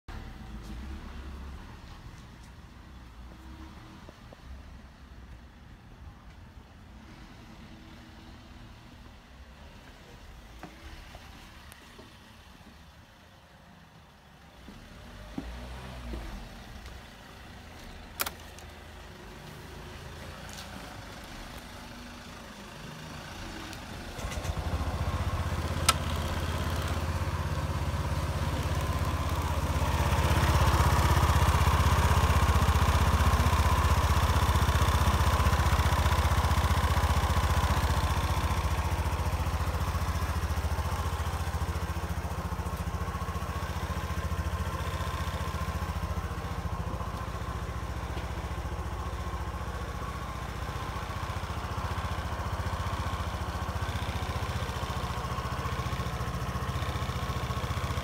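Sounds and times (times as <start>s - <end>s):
scooter engine starting and idling: 14.2s - 58.0s.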